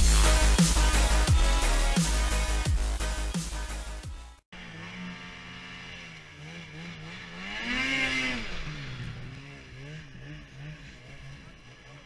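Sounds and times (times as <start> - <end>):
snowmobile engine revving: 4.6 - 12.0.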